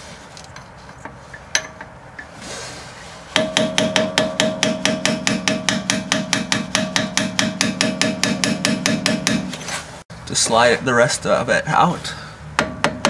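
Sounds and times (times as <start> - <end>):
hammer tapping metal punch: 3.4 - 9.5, 12.6 - 13.0.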